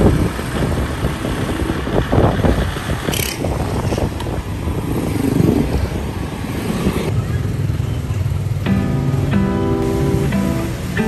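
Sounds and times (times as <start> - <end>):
wind buffeting microphone: 0.0 - 7.8
road noise: 0.0 - 11.0.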